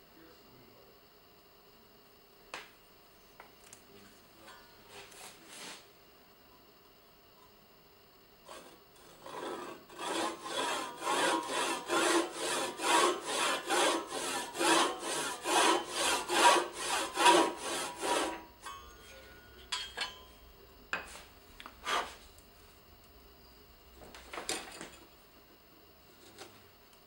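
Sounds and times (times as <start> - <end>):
brushing sounds: 4.9 - 5.9, 8.5 - 20.2, 21.0 - 22.8
hand saw cutting wood: 8.5 - 18.8, 21.8 - 22.2.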